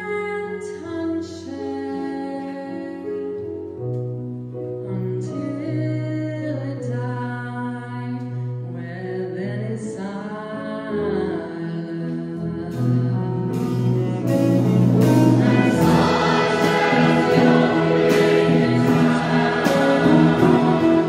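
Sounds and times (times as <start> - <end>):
live band: 12.7 - 21.0
choir singing: 13.9 - 21.0
cymbal crashes: 14.7 - 21.0.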